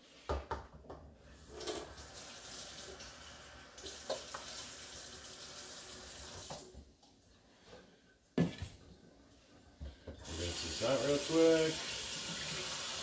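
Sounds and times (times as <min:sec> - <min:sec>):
faucet running into steel sink: 0:01.4 - 0:06.6, 0:10.2 - 0:13.0.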